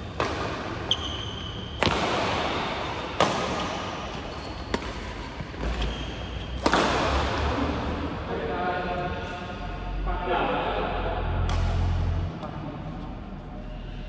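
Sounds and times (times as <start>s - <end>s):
racket hitting shuttlecock: 0.0s - 7.4s, 11.5s - 12.5s
shoe squeak on court floor: 0.9s - 1.9s, 4.2s - 6.6s.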